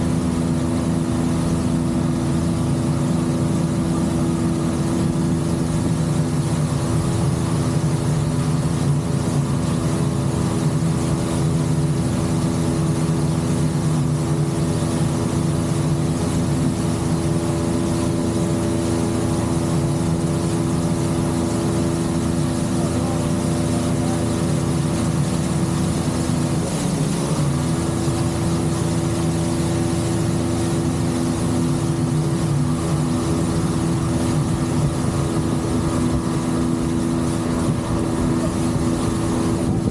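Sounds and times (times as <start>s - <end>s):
outboard motor running: 0.0s - 39.9s.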